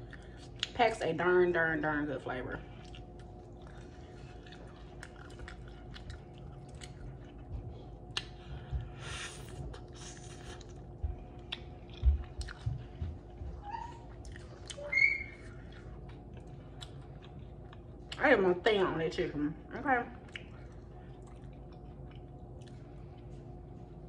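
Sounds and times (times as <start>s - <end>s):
person chewing with wet clicks: 0.0s - 1.2s, 2.6s - 18.5s, 19.8s - 24.0s
lip smacks: 8.1s - 8.4s, 20.2s - 22.8s
soft low thumps: 10.9s - 14.0s.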